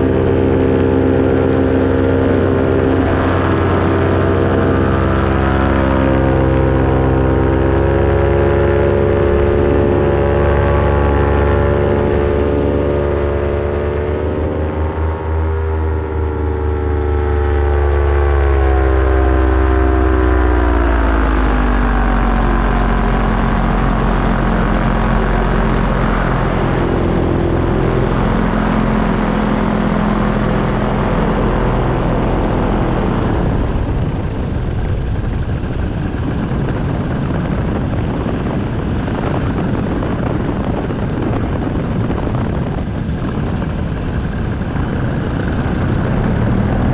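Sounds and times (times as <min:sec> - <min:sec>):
even rushing noise: 0:00.0 - 0:46.9
paramotor engine and propeller: 0:00.0 - 0:46.9.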